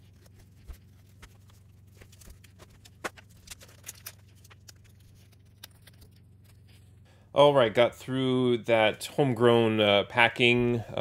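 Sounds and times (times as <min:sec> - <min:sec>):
tape and packing material crackling: 0:00.0 - 0:07.0.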